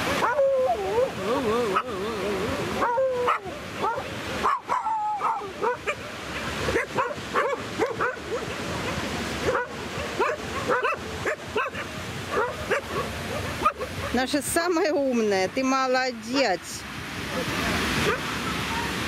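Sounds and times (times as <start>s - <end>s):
dogs barking and yelping: 0.0s - 14.3s, 18.0s - 19.0s
surf washing: 0.0s - 19.0s.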